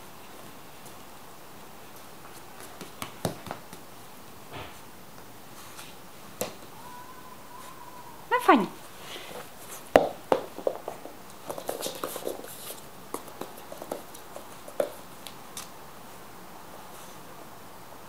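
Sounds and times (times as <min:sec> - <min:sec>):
soft rustles: 0:05.5 - 0:06.0, 0:08.8 - 0:17.3.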